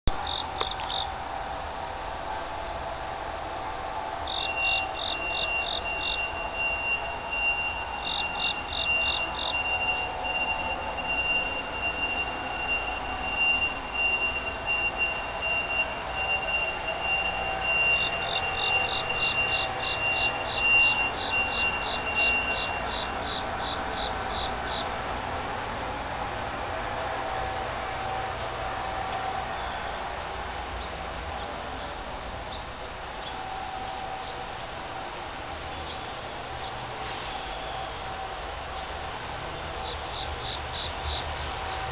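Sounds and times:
insects chirping: 0.1 - 1.2, 4.2 - 25.0, 35.7 - 41.9
background noise: 0.1 - 41.9.

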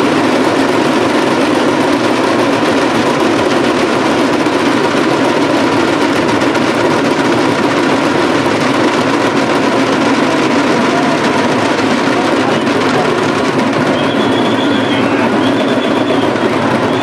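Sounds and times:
crowd roar: 4.9 - 17.0.

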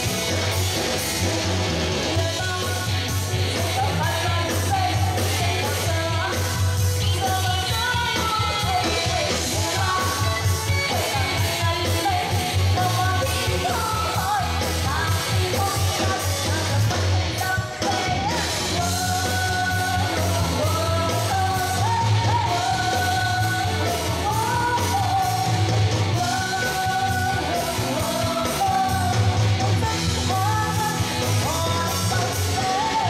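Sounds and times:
live pop band with heavy beat: 0.0 - 33.0
woman singing into microphone: 2.0 - 33.0.

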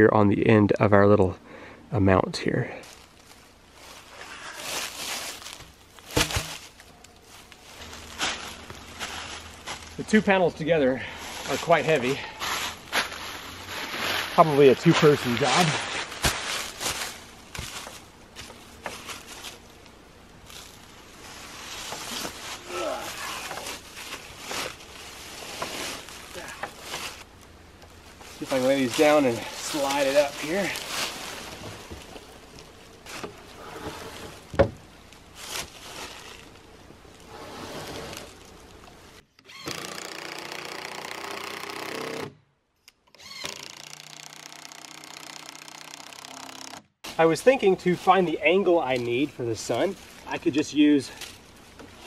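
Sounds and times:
footsteps crunching dry leaves: 2.8 - 10.0, 11.0 - 19.8, 20.4 - 27.3, 28.0 - 33.3, 35.3 - 36.6
cordless drill driving screw: 43.1 - 46.8.

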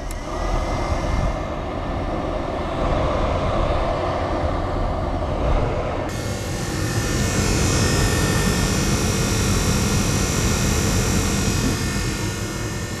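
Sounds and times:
blower motor whirring: 0.0 - 3.0, 5.8 - 13.0
thin high whine: 5.4 - 13.0.

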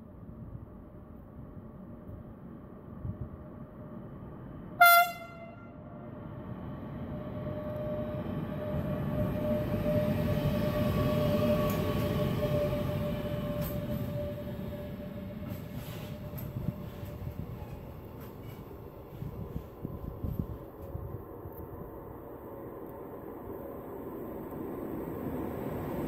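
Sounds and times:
freight train rumbling past: 0.1 - 26.0
locomotive horn blast: 4.8 - 5.9.

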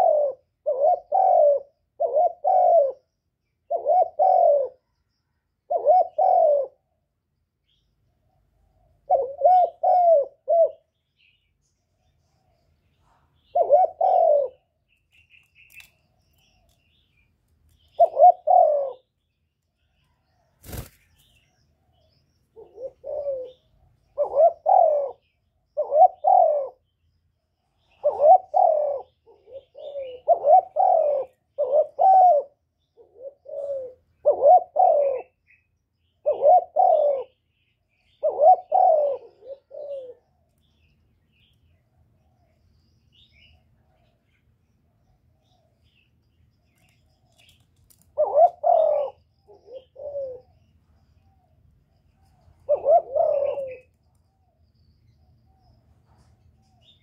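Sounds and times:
dove cooing: 0.0 - 5.0, 5.6 - 6.9, 8.9 - 11.0, 13.0 - 14.8, 17.8 - 19.2, 22.5 - 26.8, 27.8 - 35.6, 36.2 - 40.4, 46.7 - 54.0.

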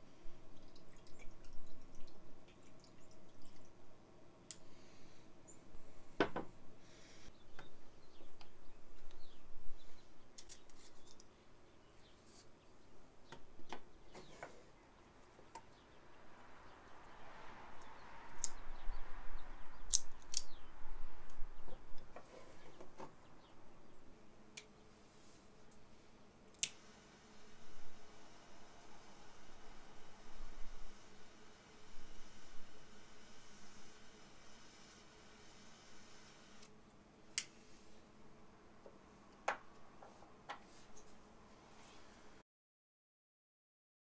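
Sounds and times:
cigar cutter clicks: 19.9 - 20.5, 26.6 - 26.8.

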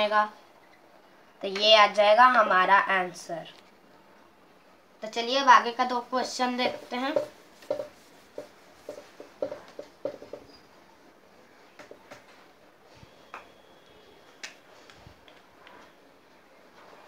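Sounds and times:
duster rubbing whiteboard: 6.4 - 10.5.

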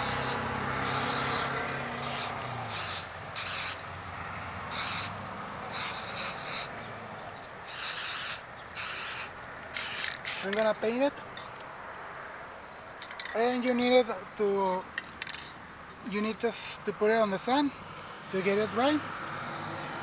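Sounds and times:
spray paint can hissing: 0.0 - 3.8, 4.7 - 5.1, 5.7 - 6.7, 7.7 - 10.6, 16.5 - 16.8.

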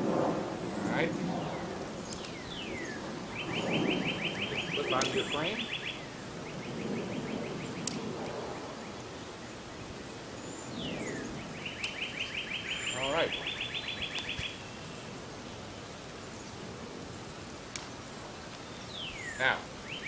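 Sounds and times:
songbird singing trills: 0.7 - 16.7, 18.0 - 20.0
sharp clicks: 2.1 - 2.4, 4.9 - 5.2, 7.8 - 8.4.

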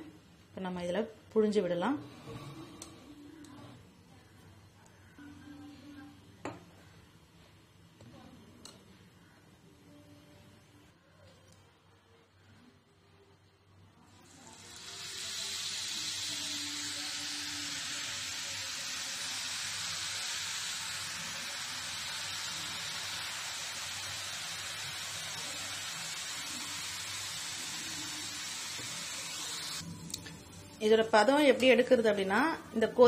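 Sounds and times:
dough sizzling in hot oil: 14.1 - 29.8.

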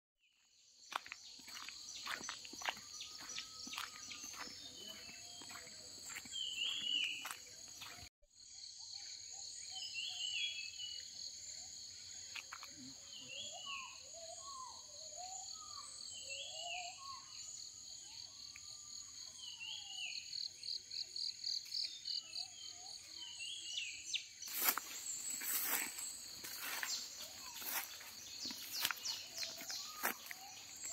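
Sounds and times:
footsteps crunching on leaves: 0.8 - 8.1, 24.5 - 30.9
high insect drone: 24.4 - 30.9.

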